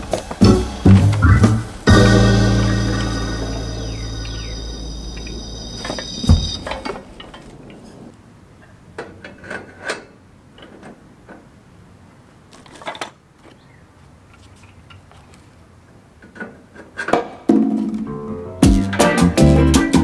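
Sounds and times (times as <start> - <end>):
background music: 0.0 - 5.8, 18.1 - 20.0
loud thump: 0.9 - 7.0.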